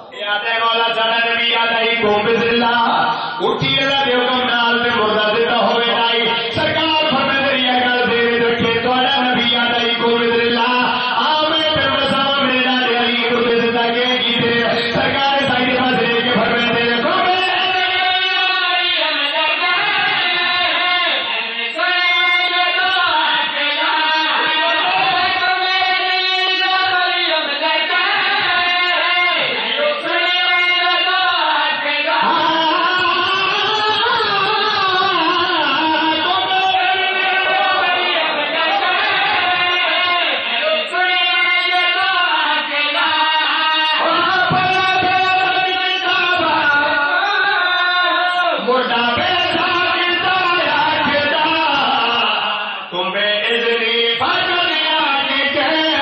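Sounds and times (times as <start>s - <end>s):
men chanting in unison: 0.0s - 56.0s.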